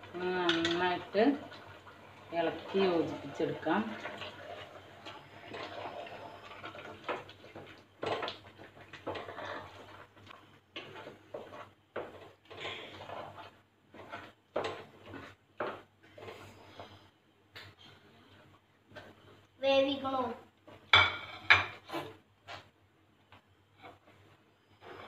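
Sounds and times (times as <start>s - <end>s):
spatula scraping metal pot: 2.7s - 7.3s, 8.0s - 17.0s.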